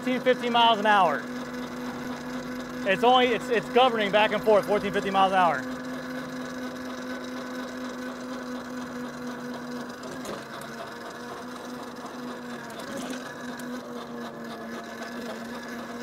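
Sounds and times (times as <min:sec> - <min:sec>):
electric motor whining: 0:00.0 - 0:16.0.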